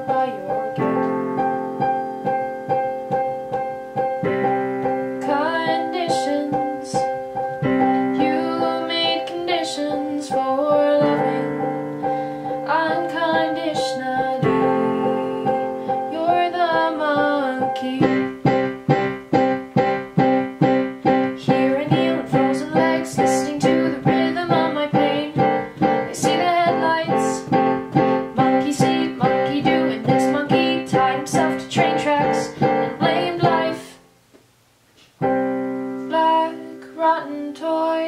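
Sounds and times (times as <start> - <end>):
piano chords: 0.0 - 34.2, 35.2 - 38.0.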